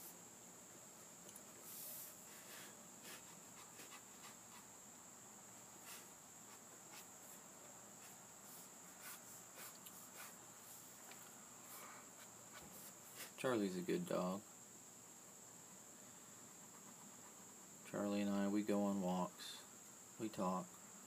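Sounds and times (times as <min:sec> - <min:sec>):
pen scratching on paper: 0:03.0 - 0:04.7, 0:05.8 - 0:07.4, 0:08.0 - 0:10.4.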